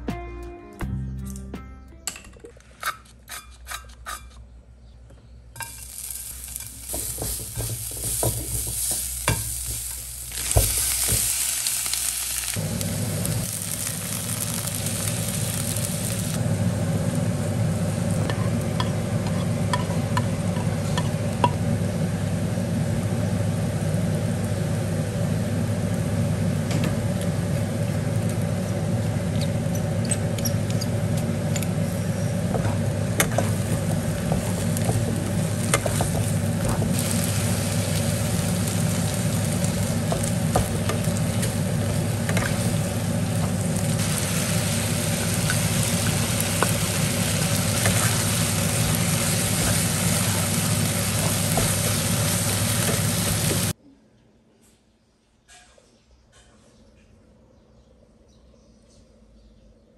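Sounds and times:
food sizzling in a wok: 5.6 - 31.4, 32.0 - 53.8.

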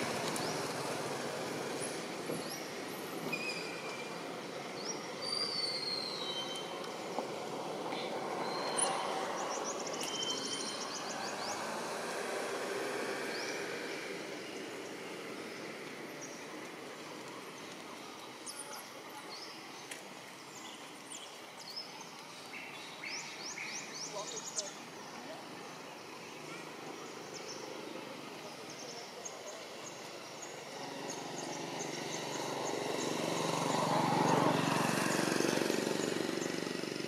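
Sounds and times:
motor vehicle passing by: 7.2 - 15.5, 30.6 - 37.0.

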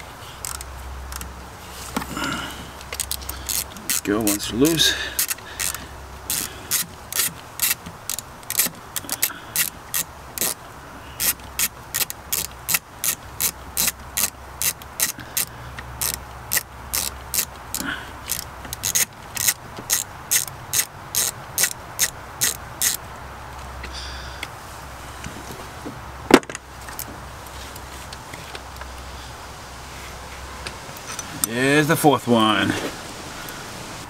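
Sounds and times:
socket ratchet clicking: 0.4 - 1.4, 2.8 - 10.6, 11.2 - 23.0.

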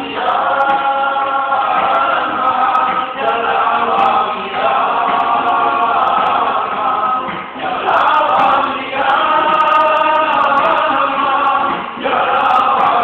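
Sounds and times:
men singing together: 0.0 - 13.0.

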